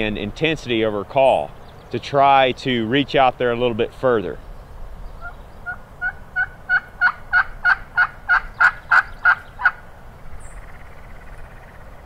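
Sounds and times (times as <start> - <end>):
turkey hen yelping: 5.2 - 9.8.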